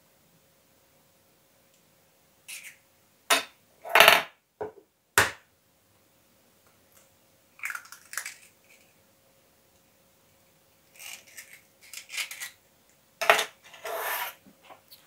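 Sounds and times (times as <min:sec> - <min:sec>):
eggshell crackling: 0:07.6 - 0:08.9
eggshells cracking on bowl rim: 0:07.6 - 0:08.9.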